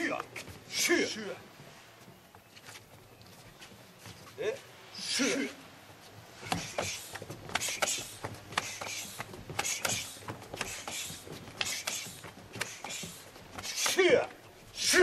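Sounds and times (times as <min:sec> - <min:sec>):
slaps of sparring strikes: 0:06.5 - 0:14.1.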